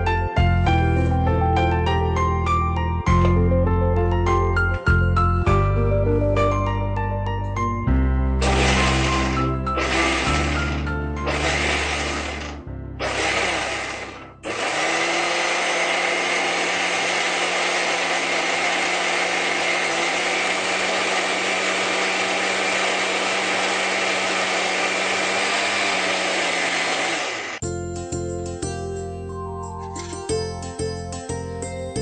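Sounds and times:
mixer grinder grinding: 0:08.4 - 0:27.6.

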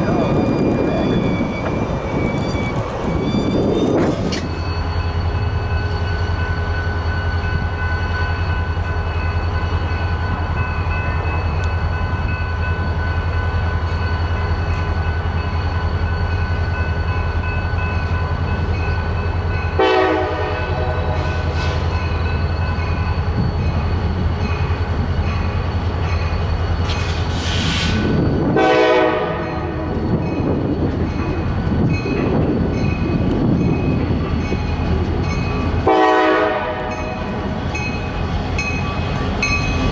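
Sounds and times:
diesel locomotive engine drone: 0:00.0 - 0:39.9
train horn blasts: 0:19.8 - 0:21.6, 0:28.5 - 0:29.9, 0:35.8 - 0:37.0.

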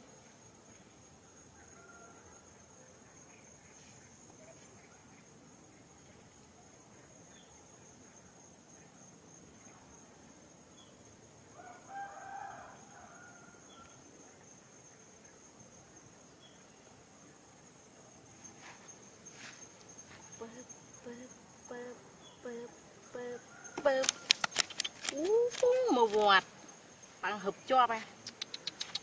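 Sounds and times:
insects droning: 0:00.0 - 0:29.0
rooster crowing: 0:01.7 - 0:02.4, 0:11.6 - 0:13.8.

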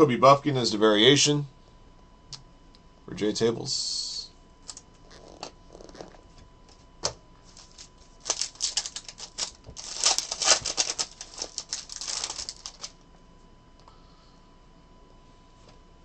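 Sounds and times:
foil wrapper crinkling and tearing: 0:07.5 - 0:13.0.

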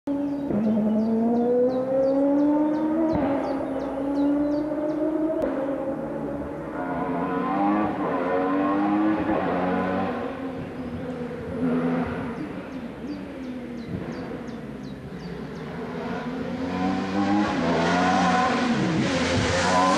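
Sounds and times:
race car engine accelerating: 0:00.1 - 0:19.9.

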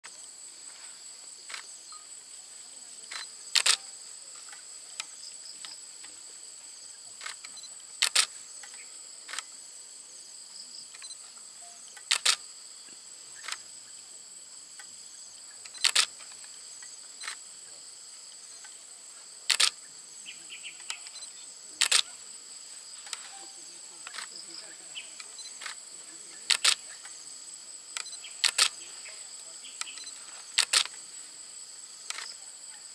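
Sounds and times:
insect chorus droning: 0:00.0 - 0:32.9
sharp double click: 0:03.1 - 0:03.9.

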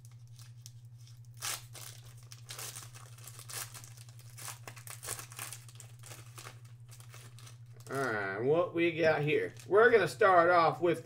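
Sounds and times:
foil wrapper crinkling torn open: 0:00.0 - 0:08.2, 0:09.4 - 0:09.8.

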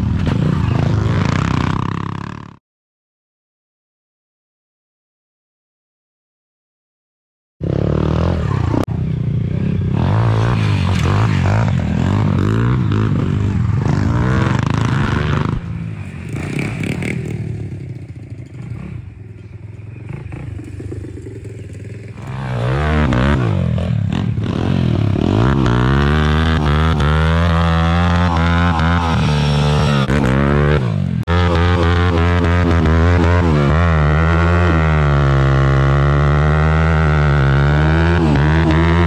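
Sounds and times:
dirt bike engines revving: 0:00.0 - 0:02.6, 0:07.6 - 0:39.0
rear wheel spinning in dirt: 0:16.3 - 0:24.0.

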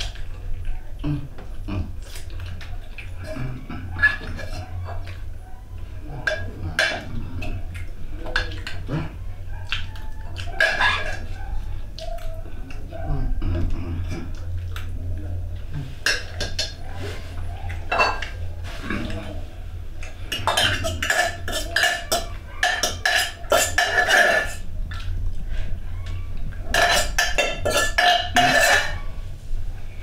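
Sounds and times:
spoon scraping metal pot: 0:20.0 - 0:24.7, 0:26.7 - 0:29.0.

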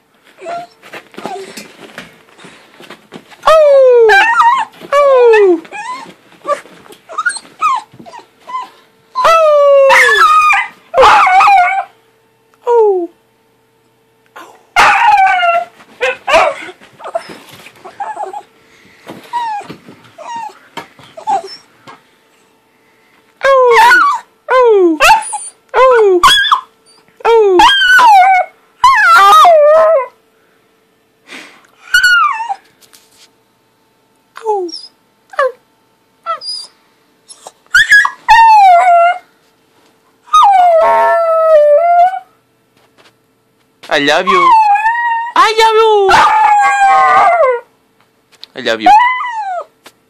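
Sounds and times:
bedding rustling: 0:00.2 - 0:03.5, 0:04.2 - 0:08.7, 0:14.8 - 0:21.5
puppy howling: 0:00.4 - 0:01.6, 0:03.4 - 0:12.0, 0:14.4 - 0:18.5, 0:19.3 - 0:20.6, 0:21.2 - 0:21.7, 0:23.4 - 0:30.2, 0:31.8 - 0:32.6, 0:37.3 - 0:39.3, 0:40.3 - 0:42.3, 0:44.2 - 0:47.7, 0:48.8 - 0:49.8
puppy yelps: 0:00.4 - 0:01.6, 0:03.4 - 0:11.9, 0:14.8 - 0:18.5, 0:19.3 - 0:20.6, 0:21.2 - 0:21.7, 0:23.4 - 0:27.0, 0:27.6 - 0:30.1, 0:31.8 - 0:32.6, 0:36.3 - 0:39.2, 0:40.3 - 0:42.3, 0:44.3 - 0:45.4, 0:46.1 - 0:47.6, 0:48.8 - 0:49.7
small dog whining: 0:00.4 - 0:01.7, 0:03.4 - 0:11.9, 0:14.4 - 0:18.5, 0:19.3 - 0:20.6, 0:21.2 - 0:21.7, 0:23.4 - 0:30.1, 0:31.8 - 0:32.6, 0:34.4 - 0:35.6, 0:36.2 - 0:39.3, 0:40.3 - 0:42.3, 0:44.3 - 0:45.4, 0:46.1 - 0:47.7, 0:48.8 - 0:49.8.

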